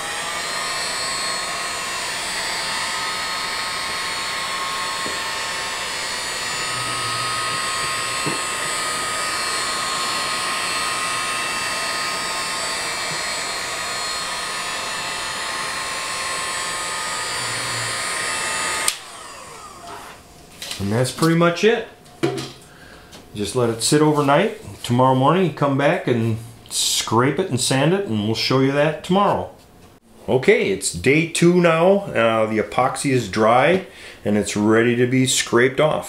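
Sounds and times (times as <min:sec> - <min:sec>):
heat gun blowing: 0:00.0 - 0:20.3.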